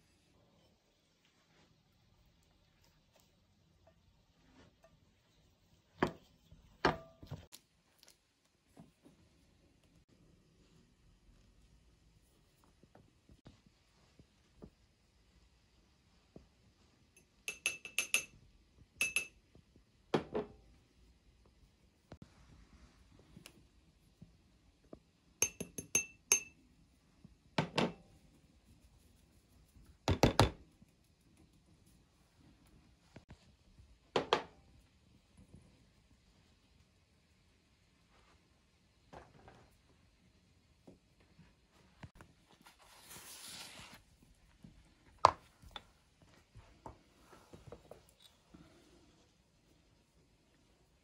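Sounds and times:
kitchenware clinking: 0:17.2 - 0:18.4, 0:19.0 - 0:19.4, 0:25.4 - 0:26.6.

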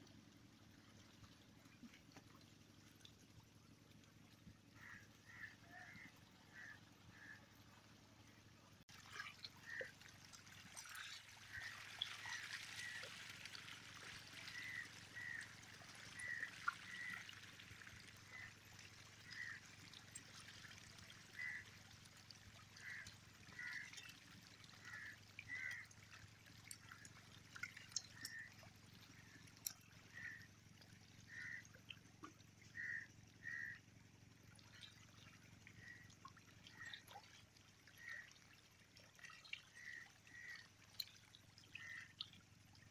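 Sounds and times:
water sloshing and trickling: 0:00.0 - 0:42.9
small splashes: 0:08.9 - 0:42.9.

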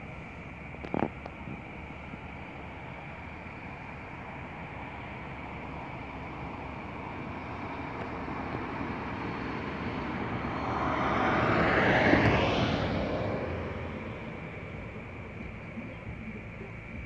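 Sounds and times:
vehicle passing by: 0:04.6 - 0:17.0.

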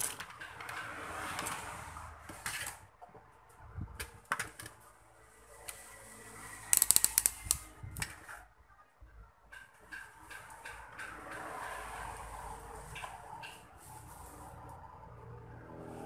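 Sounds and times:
sharp mechanical clicks: 0:06.7 - 0:08.2.

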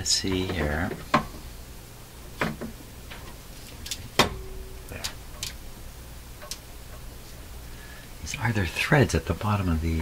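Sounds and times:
low steady hum: 0:00.0 - 0:10.0
metal clicks and knocks: 0:00.2 - 0:01.4, 0:02.4 - 0:05.6, 0:06.4 - 0:07.1.

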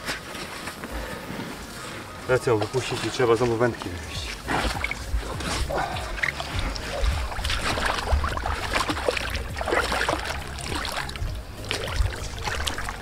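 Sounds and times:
water sloshing and splashing: 0:02.5 - 0:13.0
low microphone rumble: 0:04.4 - 0:13.0.

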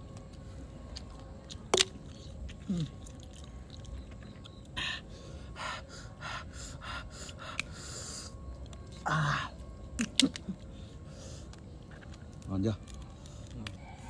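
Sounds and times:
person eating: 0:01.5 - 0:04.7.

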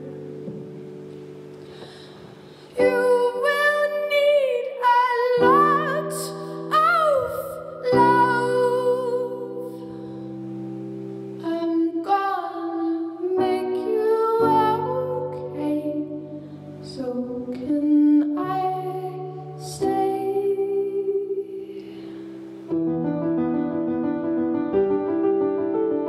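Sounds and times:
keyboard chords: 0:00.0 - 0:26.0
woman singing: 0:02.7 - 0:10.3, 0:11.4 - 0:22.1.

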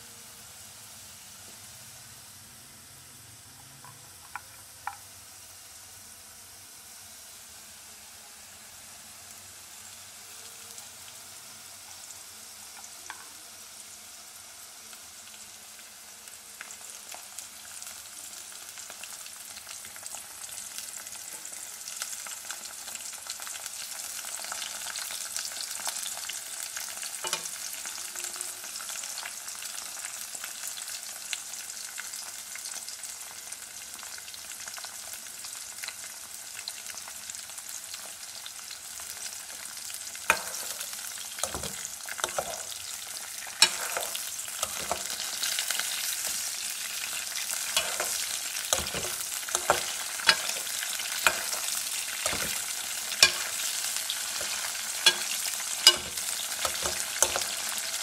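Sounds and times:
vegetables sizzling in oil: 0:00.0 - 0:58.0
metal spoon scraping a pan: 0:40.3 - 0:58.0.

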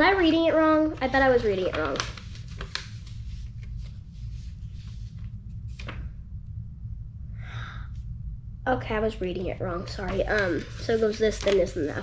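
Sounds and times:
paper pages rustling: 0:00.0 - 0:06.1, 0:10.0 - 0:12.0
steady low hum: 0:00.0 - 0:12.0.

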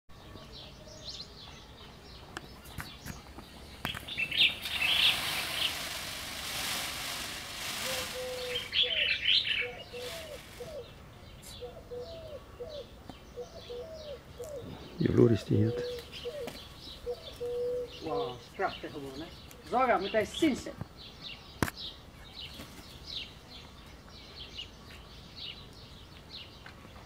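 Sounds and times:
small birds chirping: 0:00.1 - 0:27.0
bird giving low falling calls: 0:00.2 - 0:26.6
soft rustling hiss: 0:02.3 - 0:11.7.

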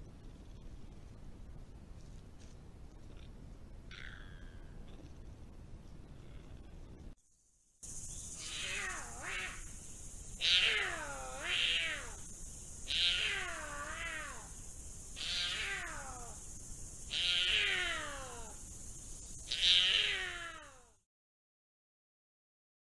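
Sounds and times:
puma meow-like calls: 0:03.1 - 0:05.2, 0:08.4 - 0:09.7, 0:10.3 - 0:14.6, 0:15.2 - 0:16.4, 0:17.1 - 0:18.6, 0:19.4 - 0:21.0.

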